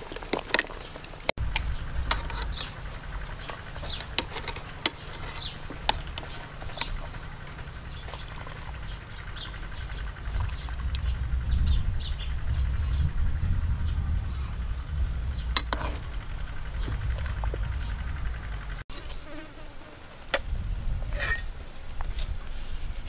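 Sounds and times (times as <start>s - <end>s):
low wind rumble: 0.9s - 18.9s, 20.0s - 23.0s
broth splashing and dripping: 5.7s - 11.2s.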